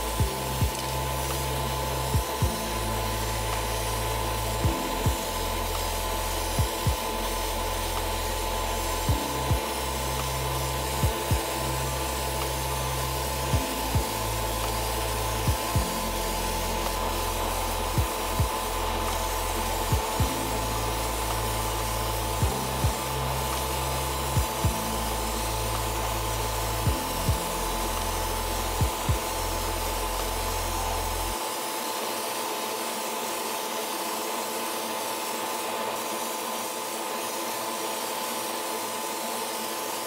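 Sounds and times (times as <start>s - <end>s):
background music with bass line: 0.0s - 31.4s
airbrush hissing and humming: 0.0s - 40.0s.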